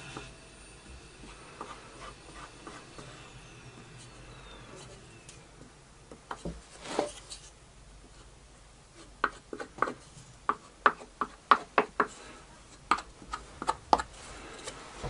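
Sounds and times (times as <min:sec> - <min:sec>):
wood scraping rub: 0:00.0 - 0:05.4, 0:06.3 - 0:07.6, 0:12.0 - 0:15.0.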